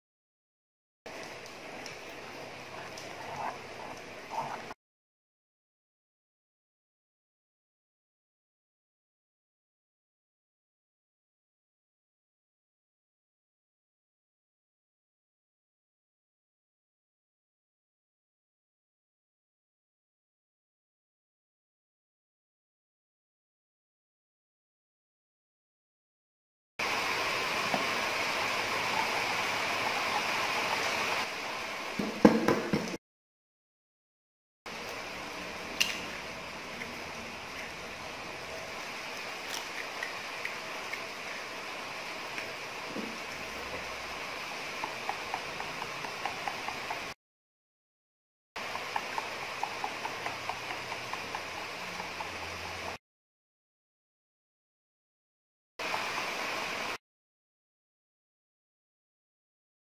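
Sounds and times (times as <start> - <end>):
steady hiss: 26.8 - 32.4, 48.6 - 53.0, 55.8 - 57.0
chopsticks beating batter in bowl: 48.6 - 53.0.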